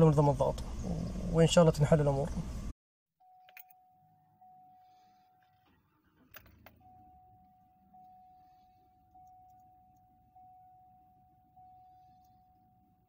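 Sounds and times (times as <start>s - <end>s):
dashboard warning chime dinging: 3.2s - 13.0s
faint engine idling: 3.7s - 13.0s.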